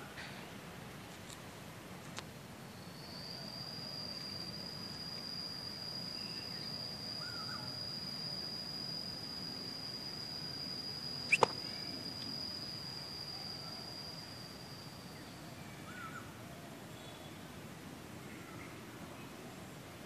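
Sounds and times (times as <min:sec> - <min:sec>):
insect trill: 0:00.0 - 0:20.0
faint bird chirps: 0:02.7 - 0:17.5
sharp clicks: 0:11.3 - 0:11.6.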